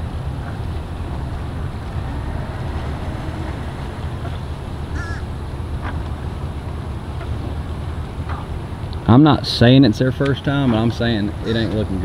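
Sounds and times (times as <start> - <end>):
low rumble: 0.0 - 9.1
bird cawing: 1.8 - 6.2.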